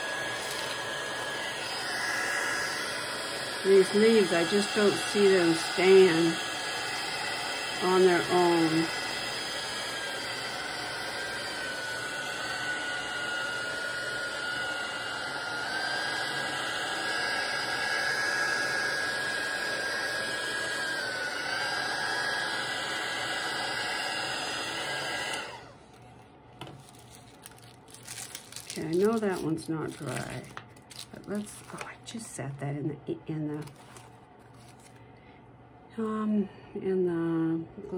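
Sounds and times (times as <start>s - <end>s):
hot-air dryer fan whine: 0.0s - 37.9s.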